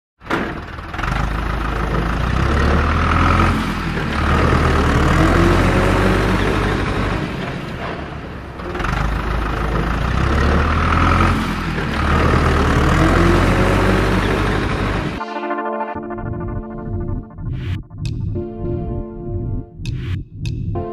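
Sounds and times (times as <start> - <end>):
heavy truck engine revving: 0.2 - 15.2.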